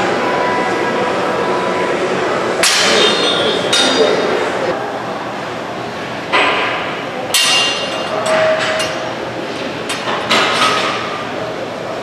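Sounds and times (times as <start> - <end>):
gym room noise: 0.0 - 12.0
metal gym equipment clanking: 2.6 - 4.4, 7.3 - 11.2.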